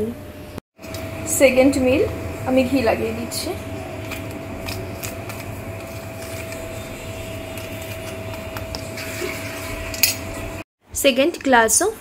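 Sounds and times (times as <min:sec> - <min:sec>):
machine hum with whine: 0:00.0 - 0:10.7.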